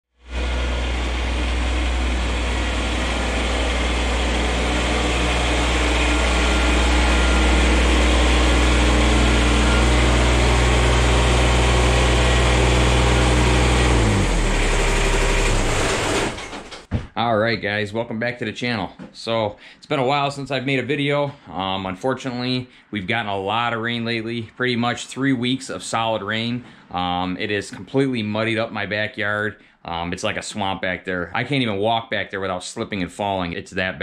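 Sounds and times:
tractor diesel engine idling: 0.2s - 16.8s.

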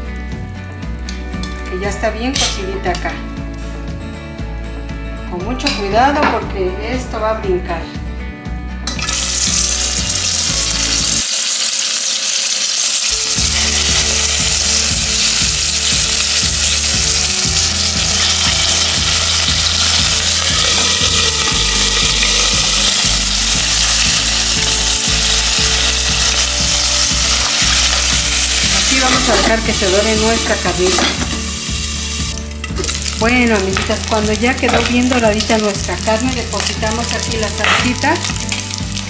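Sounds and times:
meat sizzling in hot oil: 8.9s - 39.0s.

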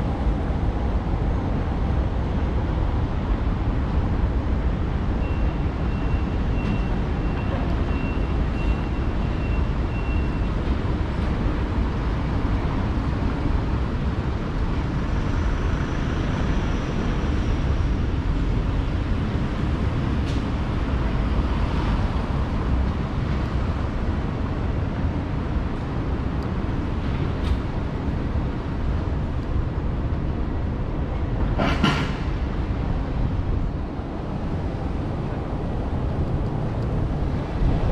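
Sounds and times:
low rumble of traffic: 0.0s - 37.9s.

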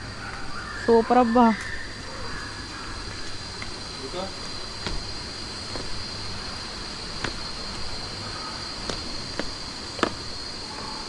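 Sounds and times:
high-pitched insect drone: 0.0s - 11.0s.

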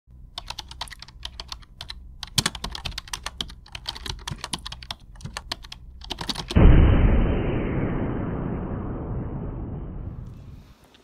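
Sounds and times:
keyboard typing clicks: 0.4s - 6.6s
loud low rush of noise: 6.6s - 10.7s.

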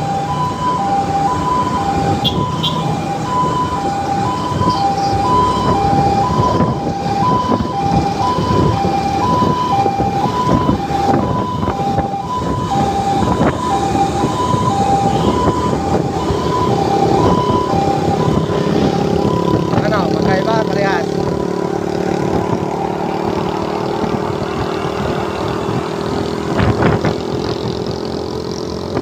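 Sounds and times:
motor scooter engine: 0.0s - 29.0s
two-tone emergency siren: 0.0s - 29.0s
wind noise: 1.4s - 20.2s, 21.1s - 29.0s.

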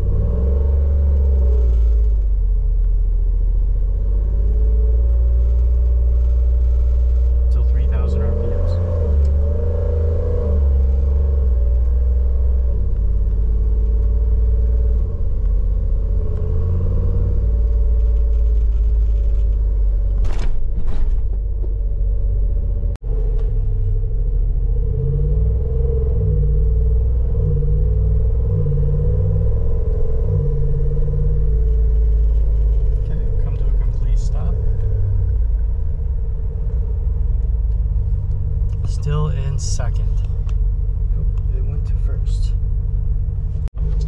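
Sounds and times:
car engine running: 0.0s - 44.0s.

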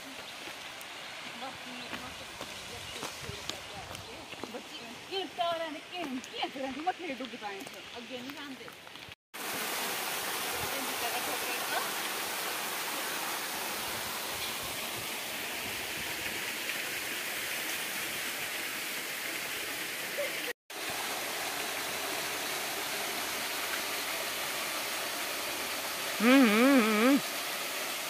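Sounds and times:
waterfall rushing into pool: 9.4s - 28.0s
person calling out: 26.2s - 27.2s.

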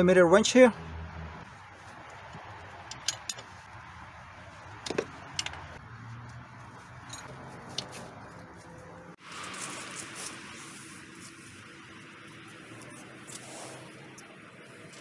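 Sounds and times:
tool clicks and metallic clinks: 2.8s - 3.5s, 4.8s - 5.7s, 7.0s - 8.0s.

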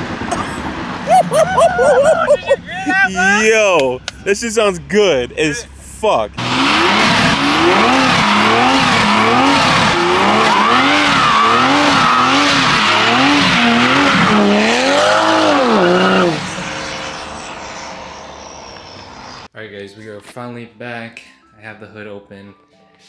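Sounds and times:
tyres squealing: 1.1s - 3.4s
car engine revving high: 6.4s - 19.4s.

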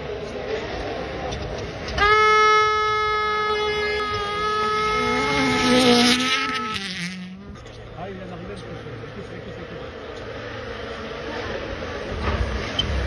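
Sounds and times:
gravel and tyre noise: 0.0s - 13.0s
rally car engine at high revs: 3.9s - 13.0s.

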